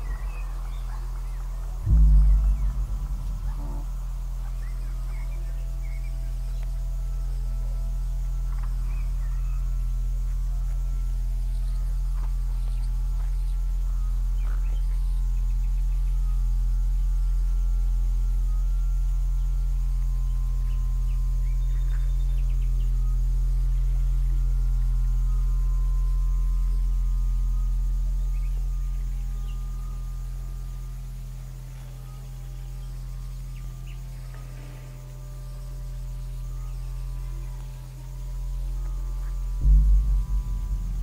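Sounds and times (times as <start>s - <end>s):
faint high chirps and ticks: 0.0s - 41.0s
low ambient drone: 0.0s - 41.0s
deep throbbing thump: 1.8s - 6.5s, 39.6s - 41.0s.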